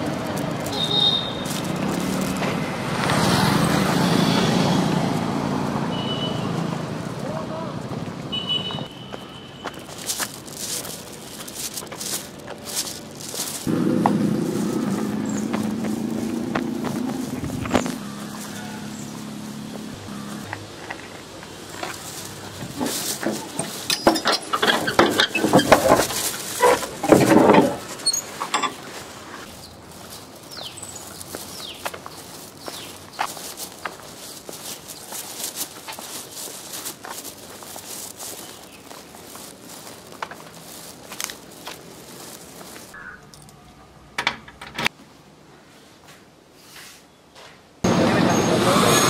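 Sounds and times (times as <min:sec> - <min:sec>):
light footsteps: 0:06.5 - 0:43.5.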